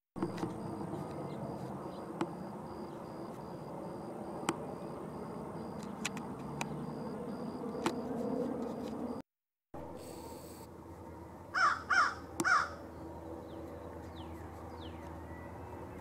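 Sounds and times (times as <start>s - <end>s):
distant road traffic rumble: 0.2s - 9.2s, 9.8s - 16.0s
faint high pulsing tone: 0.2s - 9.2s, 9.8s - 11.4s
sharp clicks: 5.8s - 6.8s.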